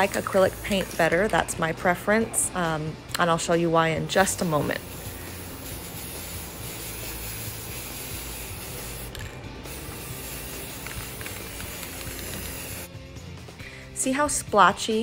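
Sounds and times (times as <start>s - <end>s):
spray paint can hissing: 0.0s - 1.3s, 4.1s - 12.9s.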